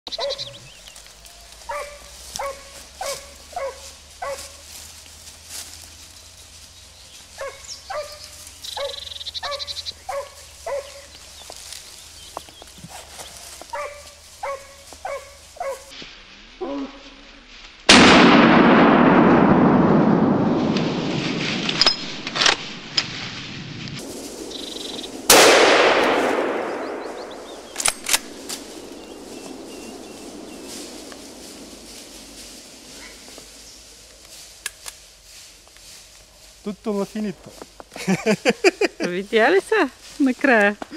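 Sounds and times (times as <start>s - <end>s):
dogs barking: 0.1s - 0.7s, 1.7s - 4.7s, 7.3s - 11.2s, 12.9s - 15.9s
shotgun shots echoing: 17.9s - 20.5s, 25.1s - 31.3s.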